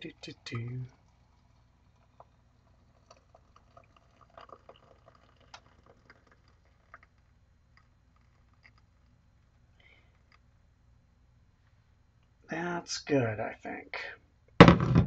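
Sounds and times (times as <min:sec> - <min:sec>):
water trickling into a mug: 0:00.0 - 0:09.6.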